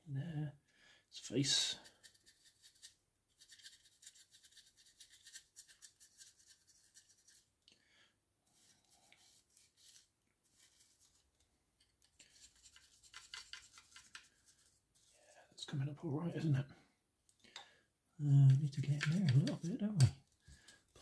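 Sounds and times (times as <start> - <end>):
dry brush scrubbing plastic: 18.5 - 20.1.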